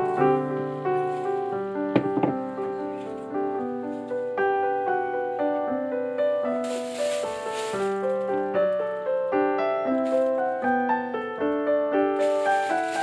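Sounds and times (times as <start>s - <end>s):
piano music: 0.0s - 13.0s
faint rustle: 6.6s - 8.4s, 12.2s - 13.0s.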